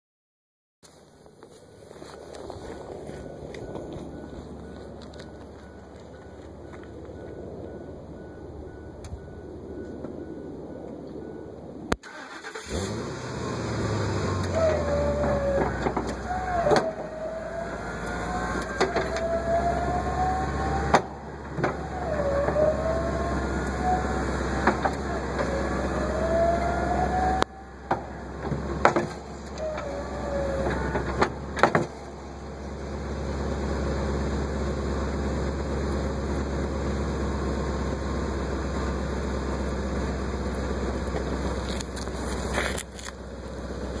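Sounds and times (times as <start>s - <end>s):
truck engine idling: 1.2s - 44.0s
hydraulic pump whining: 12.0s - 12.9s, 14.1s - 33.0s.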